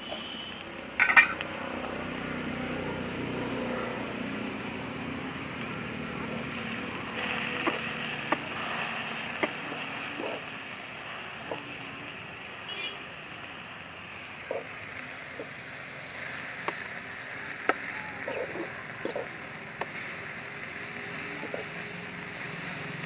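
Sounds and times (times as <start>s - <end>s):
steady hiss: 0.0s - 23.0s
ladle clinking on steel pot: 1.0s - 1.4s.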